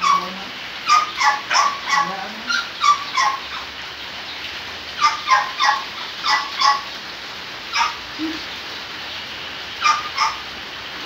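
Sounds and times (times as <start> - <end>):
dog whimpering yelps: 0.0 - 3.6, 5.0 - 6.9, 9.8 - 10.4.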